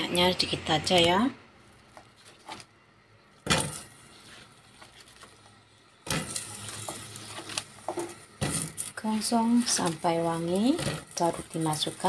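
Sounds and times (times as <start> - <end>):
onion frying in oil: 3.3 - 12.0.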